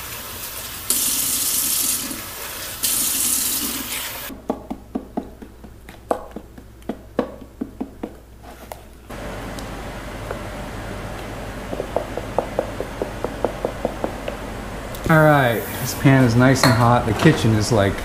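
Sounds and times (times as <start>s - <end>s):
faucet running water: 0.0s - 4.3s.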